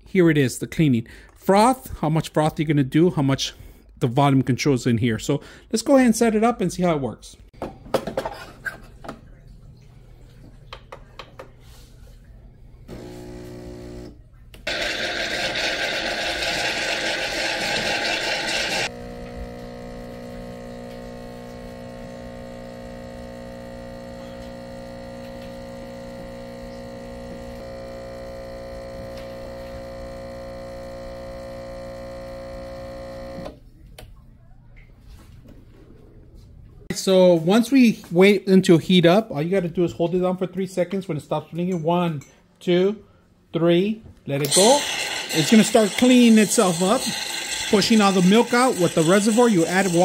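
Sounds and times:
espresso machine short hum: 12.9 - 33.5
pump buzzing hum: 12.9 - 33.6
milk frother steam hiss: 14.7 - 33.4, 44.5 - 50.0.

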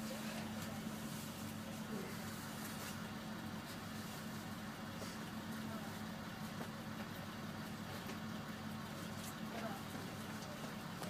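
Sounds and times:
bus engine idling: 0.0 - 11.0.

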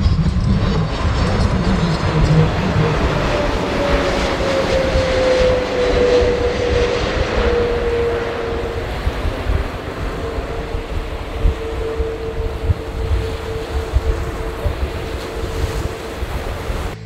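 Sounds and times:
jet airliner passing overhead: 0.0 - 17.0.

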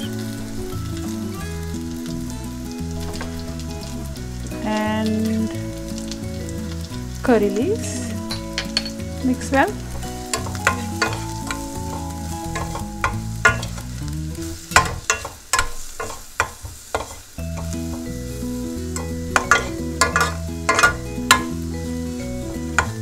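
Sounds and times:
food sizzling in hot oil: 0.0 - 23.0
metal spoon scraping a pan: 9.9 - 13.9, 14.7 - 22.1.

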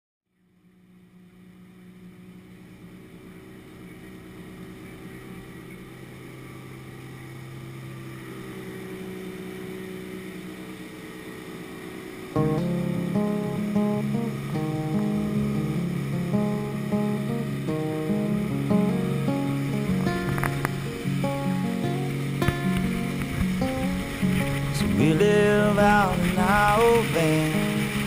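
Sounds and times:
speedboat motor humming: 0.3 - 28.0
water and wind rushing: 1.0 - 28.0
music: 12.4 - 28.0.

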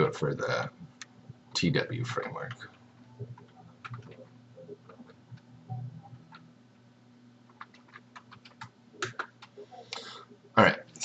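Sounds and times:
faint low hum: 0.0 - 11.0
keyboard keys clicking: 2.4 - 6.4, 7.5 - 9.6.

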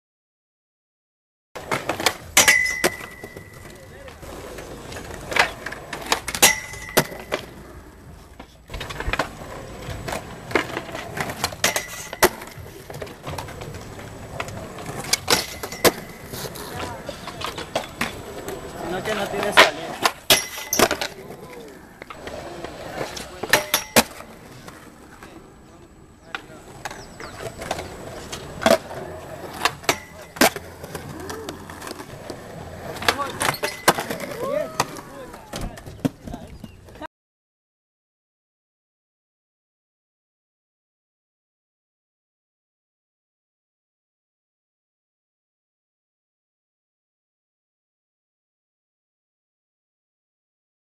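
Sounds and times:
skateboard wheels rolling on concrete: 1.6 - 37.1
skateboards clacking on concrete: 1.6 - 37.1.

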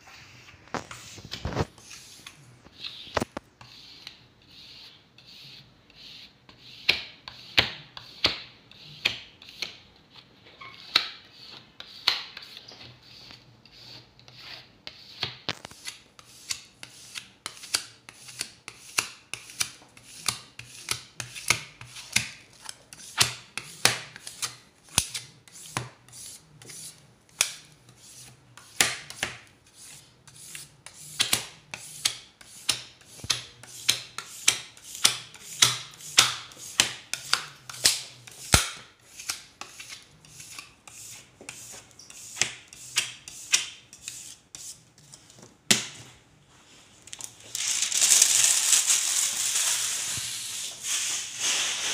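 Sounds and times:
squeegee scraping wet film: 0.7 - 4.9.

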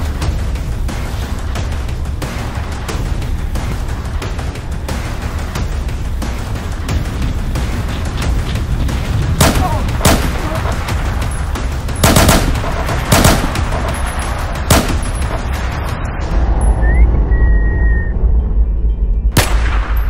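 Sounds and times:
handgun gunshots: 9.4 - 10.8, 12.0 - 15.3.

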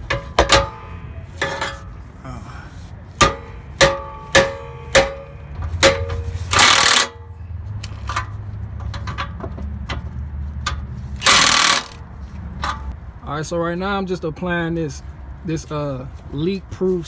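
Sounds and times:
impact wrench hammering: 0.0 - 1.9, 3.2 - 7.3, 11.2 - 12.0.

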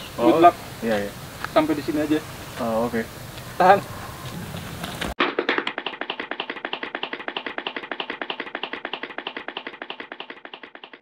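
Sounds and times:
running footsteps sound effect: 4.6 - 11.0.

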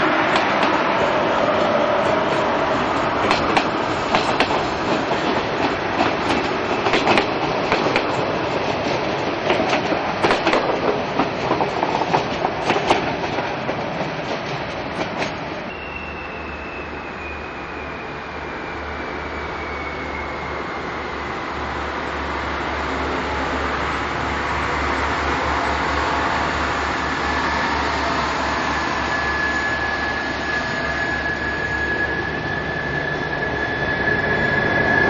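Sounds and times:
train wheels clattering over rail joints: 2.0 - 15.5.

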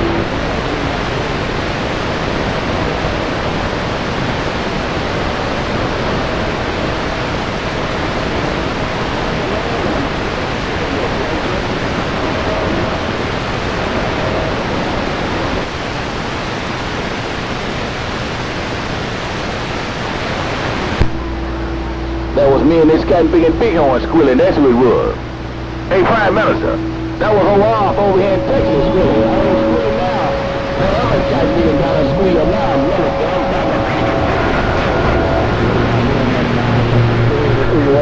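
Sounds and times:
radio static hiss: 0.0 - 38.0.

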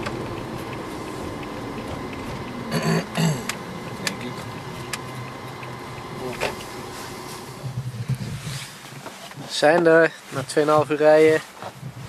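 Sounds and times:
road and engine noise in a vehicle: 0.0 - 12.0
person clearing throat: 2.7 - 3.5.

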